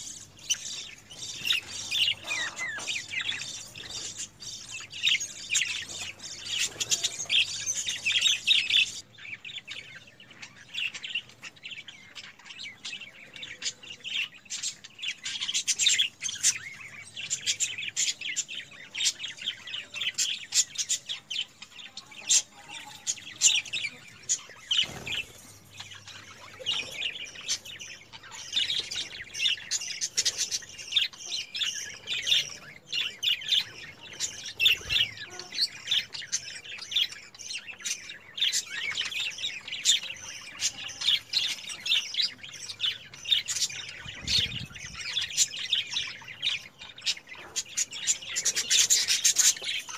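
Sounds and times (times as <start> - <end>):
budgerigars chattering: 0.0 - 9.1.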